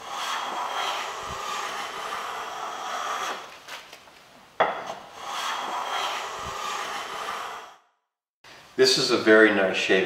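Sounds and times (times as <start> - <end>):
hand plane stroke on wood: 0.0 - 3.5, 4.8 - 7.8.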